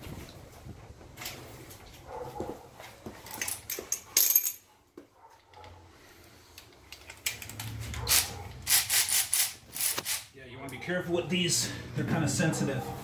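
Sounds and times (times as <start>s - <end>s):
metal tools clinking and clattering: 3.2s - 4.7s.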